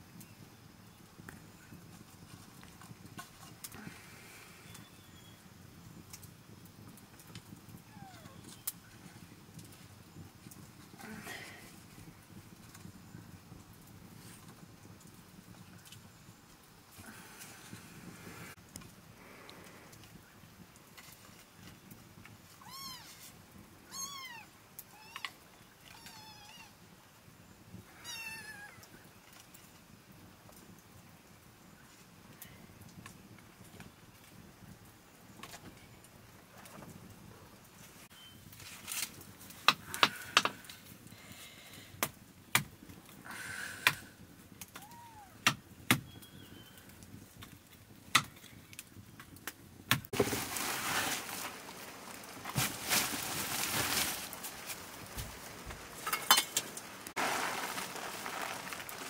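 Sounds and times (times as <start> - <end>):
wood fire crackling: 0.0 - 59.0
cat meowing: 22.6 - 23.2, 44.8 - 45.4
plastic sack rustling: 50.1 - 59.0.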